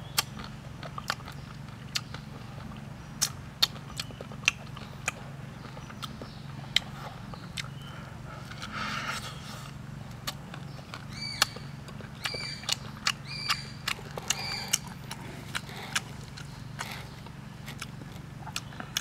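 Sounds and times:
corn being bitten and chewed: 0.0 - 7.8, 10.1 - 19.0
steady low hum: 0.0 - 19.0
high bird chirps: 10.7 - 14.8.

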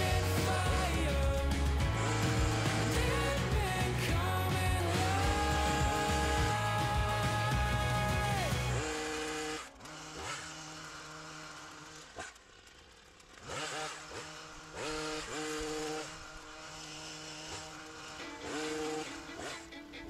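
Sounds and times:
hedge trimmer engine revving: 0.0 - 20.0.

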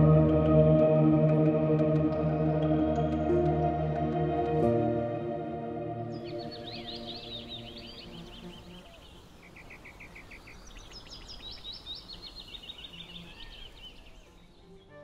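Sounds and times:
small birds chirping: 6.1 - 15.0.

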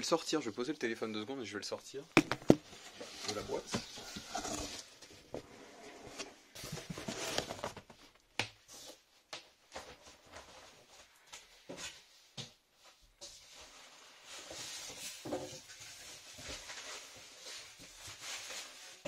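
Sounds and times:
cardboard box rustling: 2.2 - 5.3, 6.0 - 8.0.

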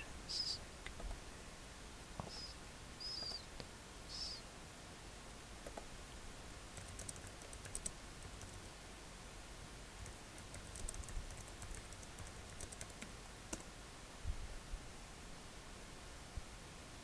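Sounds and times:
typing on computer keyboard: 6.8 - 8.6, 10.0 - 13.7.

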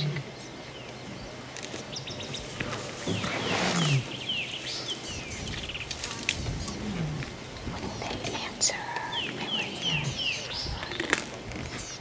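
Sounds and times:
lion growling low: 0.0 - 0.3, 3.1 - 4.2, 6.4 - 7.8
small birds chirping: 0.0 - 12.0.

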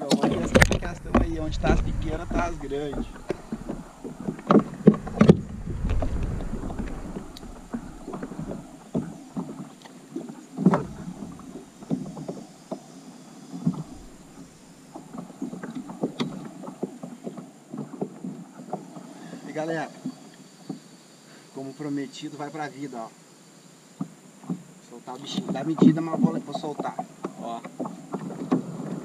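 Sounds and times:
knocks of tackle in plastic kayak: 0.1 - 12.8, 25.4 - 29.0
wind buffeting microphone: 0.2 - 9.7, 10.6 - 12.2, 13.6 - 16.8.

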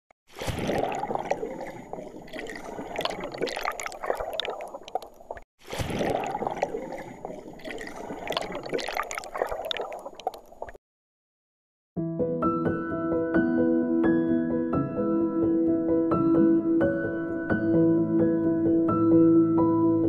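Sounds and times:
bubbling trickling water: 0.3 - 10.8.

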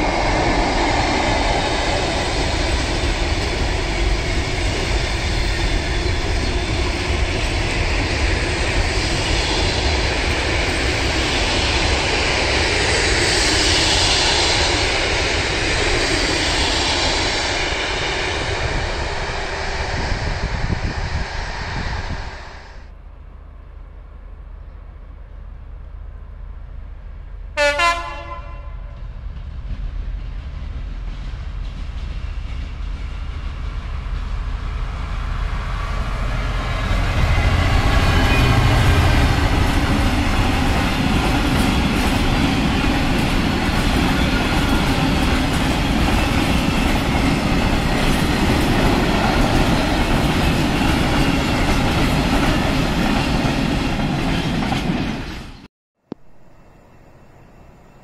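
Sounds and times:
train wheels on rails: 0.0 - 22.9, 26.6 - 56.3
diesel locomotive engine: 0.0 - 58.0
train horn blast: 27.6 - 29.0, 37.3 - 39.2.

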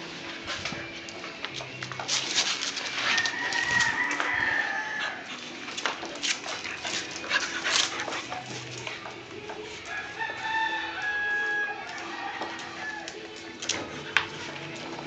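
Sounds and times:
dogs scuffling on concrete: 0.0 - 15.0
claws clicking and scraping: 1.0 - 10.8.

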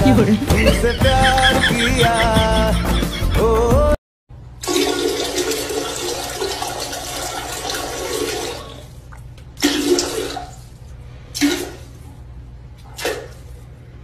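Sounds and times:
music with singing: 0.0 - 4.0.

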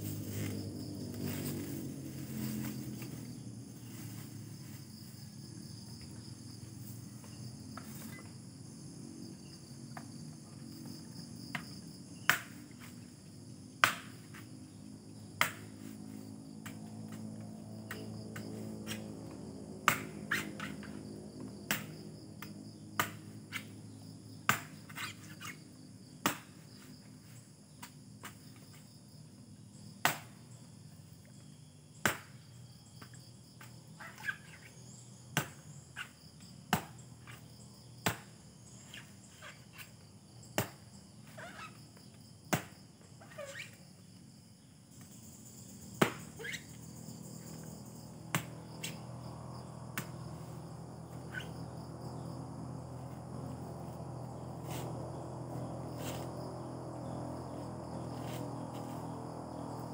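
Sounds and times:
crickets droning: 0.0 - 59.9
sharp snaps at the ground: 11.5 - 13.0, 13.8 - 14.5, 15.3 - 15.9, 17.8 - 19.1, 19.8 - 23.8, 24.4 - 25.5, 26.2 - 26.6, 30.0 - 30.4, 32.0 - 32.4, 35.3 - 37.4, 38.0 - 38.4, 40.5 - 40.9, 42.5 - 42.8, 45.9 - 46.6, 48.3 - 49.0, 49.9 - 50.4.

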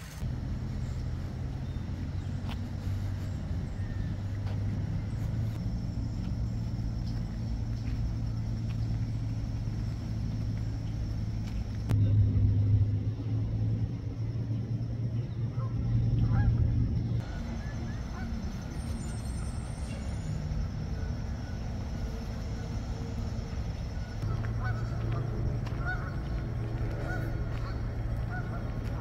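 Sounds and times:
steady low rumble: 0.0 - 29.0
geese honking: 15.2 - 29.0.

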